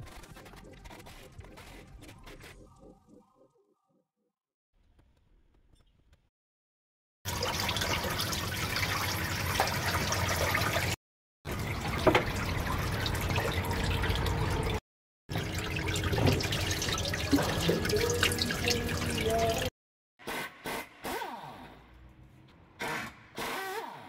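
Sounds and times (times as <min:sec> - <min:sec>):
fluid pouring into drain pan: 0:07.3 - 0:19.7.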